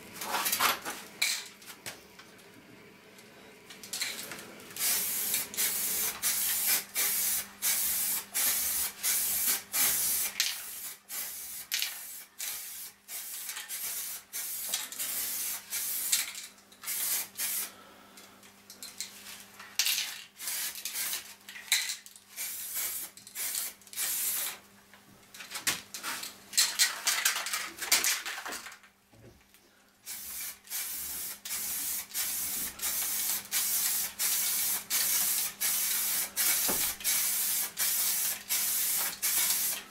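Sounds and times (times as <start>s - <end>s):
spray paint hissing in bursts: 4.8s - 17.8s, 20.4s - 21.3s, 22.3s - 24.6s, 30.0s - 39.9s.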